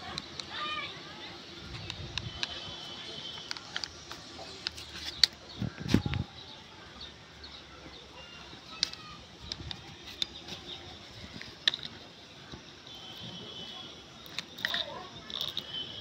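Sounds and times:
plastic toy clicking and knocking: 0:08.7 - 0:10.7, 0:11.4 - 0:12.0, 0:14.2 - 0:15.8.

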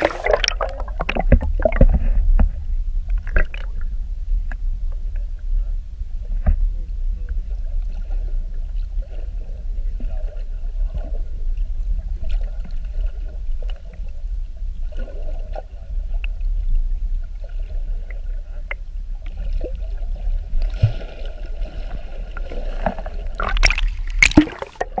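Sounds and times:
water splashes: 0:00.0 - 0:03.9, 0:17.4 - 0:25.0
faint water sloshing: 0:00.0 - 0:04.6, 0:06.3 - 0:25.0
underwater low rumble: 0:00.0 - 0:25.0.

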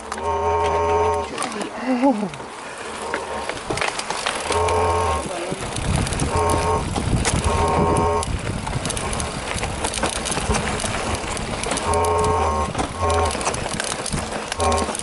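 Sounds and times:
buzzing tone: 0:00.0 - 0:01.3, 0:04.4 - 0:05.3, 0:06.3 - 0:08.3, 0:10.4 - 0:13.6, 0:14.6 - 0:15.0
bike rattling over rocks: 0:00.0 - 0:15.0
wind noise: 0:03.2 - 0:15.0.

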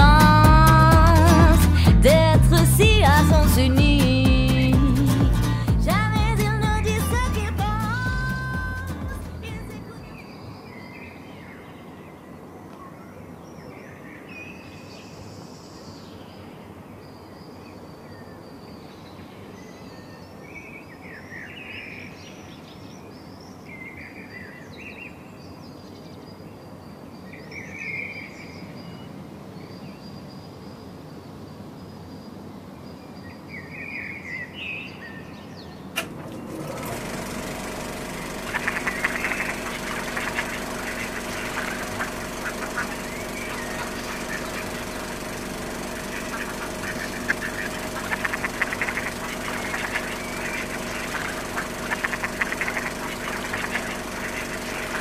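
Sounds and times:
low steady hum: 0:00.0 - 0:10.2, 0:36.0 - 0:55.0
small birds chirping: 0:33.6 - 0:55.0.

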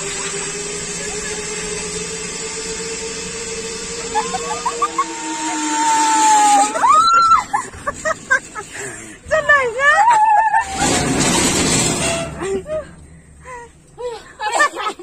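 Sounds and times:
zipline trolley whirring on cable: 0:00.0 - 0:15.0
woman screaming: 0:04.1 - 0:07.6, 0:09.4 - 0:11.0
woman exclaiming: 0:09.3 - 0:10.8.

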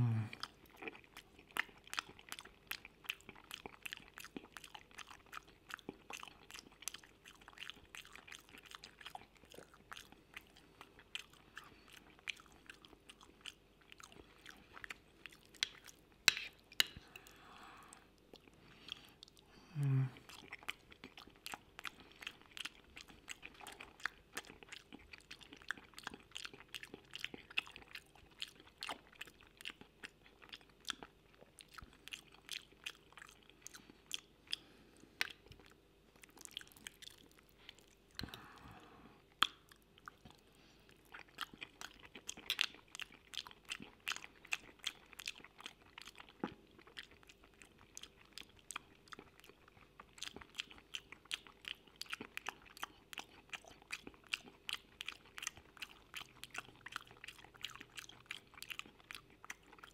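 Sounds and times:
low voiced mouth sound: 0:00.0 - 0:00.4, 0:19.6 - 0:20.3
close chewing with wet mouth clicks: 0:00.0 - 0:59.9.

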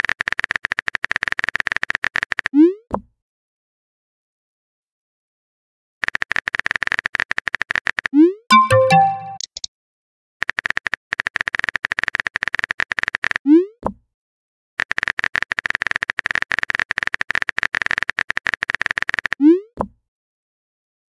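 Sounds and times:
rapid keyboard typing clicks: 0:10.4 - 0:13.4, 0:14.8 - 0:19.4.

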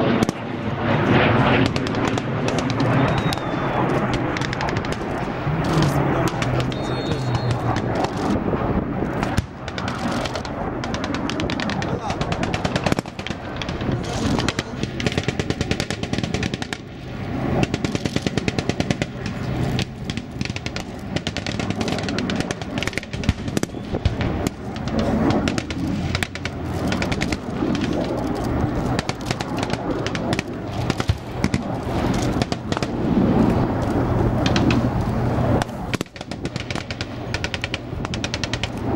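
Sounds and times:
low engine hum: 0:00.0 - 0:38.9
machine-gun fire bursts: 0:09.2 - 0:16.8, 0:17.6 - 0:28.1.

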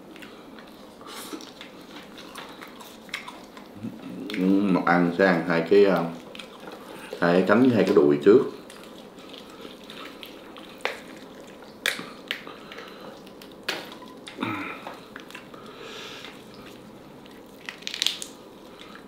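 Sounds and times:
wet squishy pulling of meat: 0:00.0 - 0:19.0.

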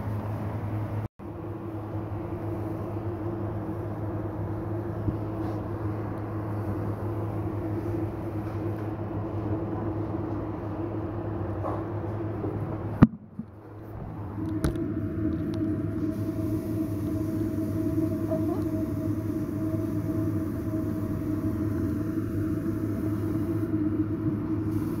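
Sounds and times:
machine hum: 0:00.0 - 0:25.0
faint fixed whine: 0:13.0 - 0:25.0.

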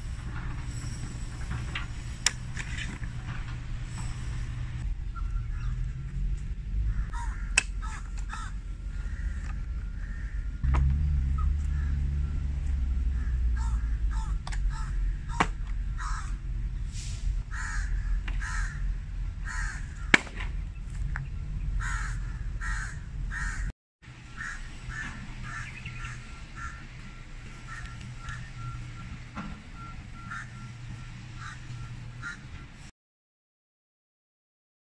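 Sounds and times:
low rumble: 0:00.0 - 0:28.8
crows cawing: 0:06.8 - 0:10.6, 0:11.6 - 0:12.1, 0:13.1 - 0:16.5, 0:17.5 - 0:20.2, 0:21.8 - 0:23.7, 0:24.4 - 0:28.6, 0:30.2 - 0:30.6, 0:31.4 - 0:32.5.

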